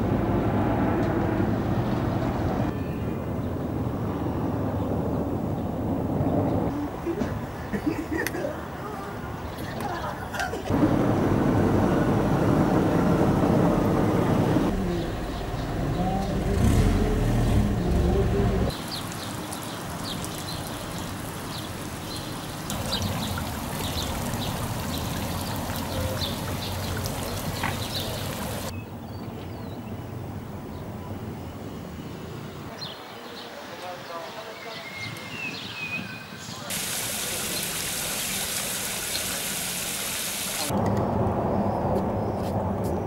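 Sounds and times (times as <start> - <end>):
loud low rumbling: 10.7 - 18.8
small birds chirping: 14.7 - 30.9.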